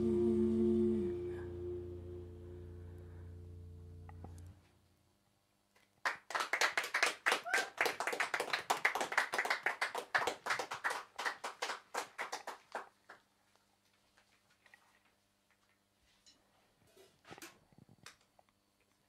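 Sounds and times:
small group applauding: 6.0s - 13.3s.

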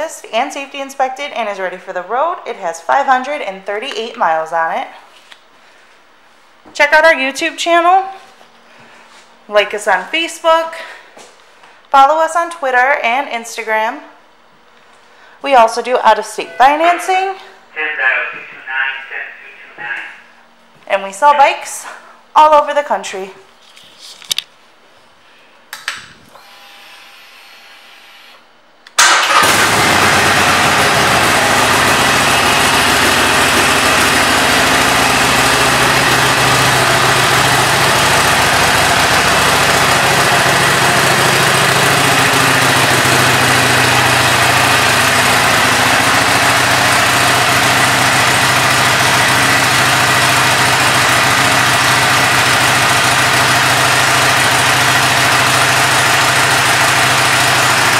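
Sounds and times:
motorcycle engine starting and idling: 28.9s - 57.9s.

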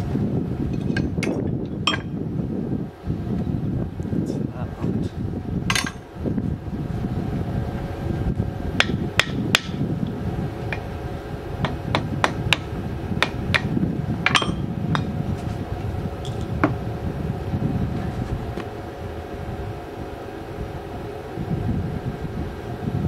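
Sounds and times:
low drone: 0.0s - 23.0s
hammer striking steel: 14.3s - 14.6s.

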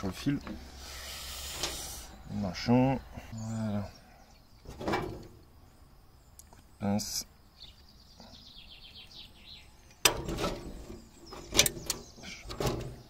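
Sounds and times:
plastic parts clattering and rustling: 10.0s - 13.0s.

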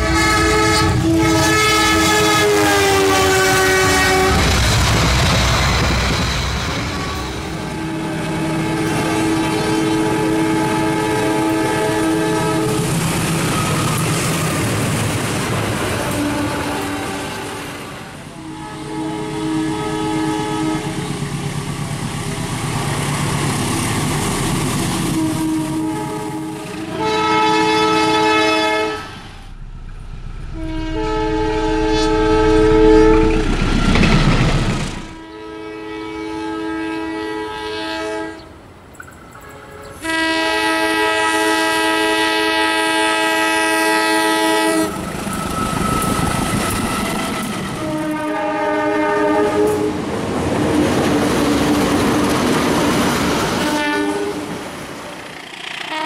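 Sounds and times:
locomotive horn chime blasts: 0.0s - 4.4s, 7.0s - 12.8s, 18.4s - 20.9s, 25.2s - 29.2s, 30.5s - 33.4s, 35.2s - 38.4s, 39.3s - 45.0s
train rumble and wheel clatter: 0.0s - 56.0s.

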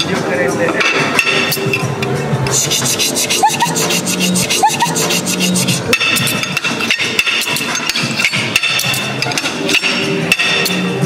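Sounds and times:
knife sawing through steak: 2.5s - 5.9s.

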